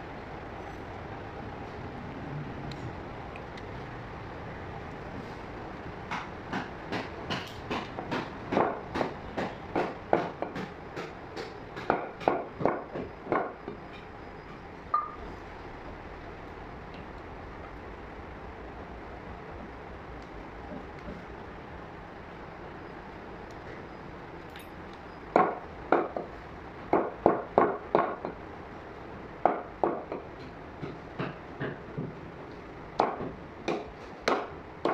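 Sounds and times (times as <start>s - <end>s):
cleaver chopping on wooden block: 6.1s - 13.5s, 33.0s - 34.9s.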